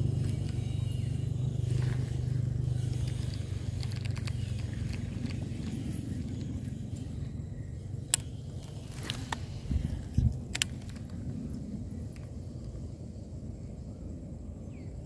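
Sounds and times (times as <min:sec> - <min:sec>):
steady low rumble: 0:00.0 - 0:15.0
fishing reel clicks: 0:00.2 - 0:11.2.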